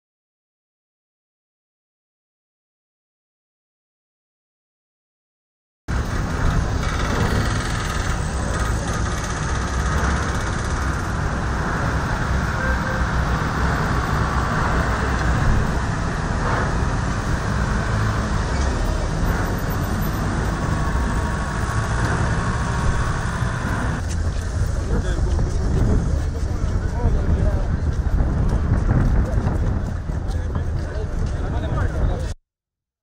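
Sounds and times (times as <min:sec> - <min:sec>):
road traffic: 0:05.9 - 0:32.4
indistinct voices: 0:06.0 - 0:32.4.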